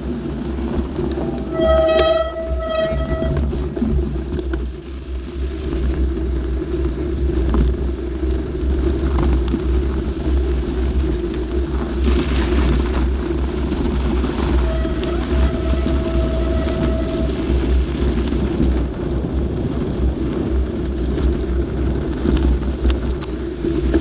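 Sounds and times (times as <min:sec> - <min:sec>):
bike tyres rolling over snow: 0:00.0 - 0:24.0
wind buffeting microphone: 0:00.0 - 0:24.0.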